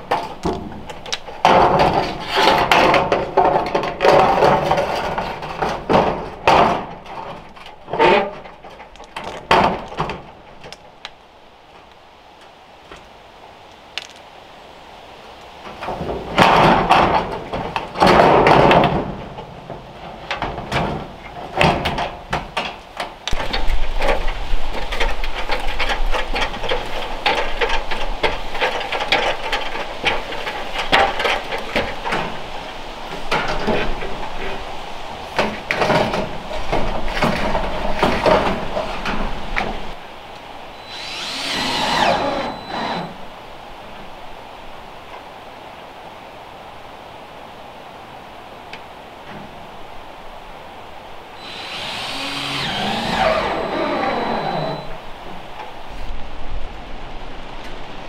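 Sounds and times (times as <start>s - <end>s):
metal roofing panels scraping: 0.0s - 10.7s, 15.7s - 40.0s, 40.8s - 43.3s, 51.4s - 55.0s.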